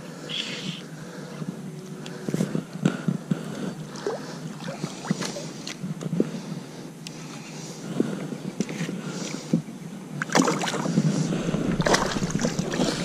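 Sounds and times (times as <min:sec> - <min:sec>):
water lapping against plastic hull: 0:10.2 - 0:13.0.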